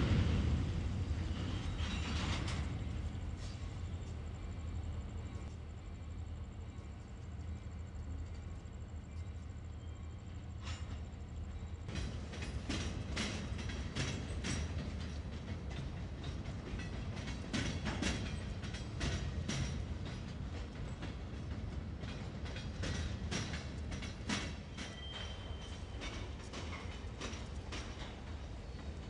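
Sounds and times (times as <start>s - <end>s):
wheels clanking over rail joints: 0.0s - 3.6s, 10.6s - 29.0s
freight train rumbling: 0.0s - 29.0s.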